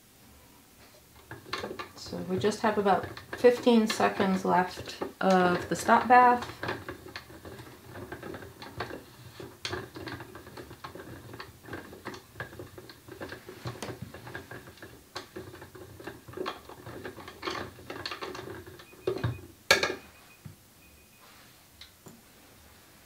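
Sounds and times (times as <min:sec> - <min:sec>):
plastic tank clicks and rattles: 0:01.2 - 0:20.0.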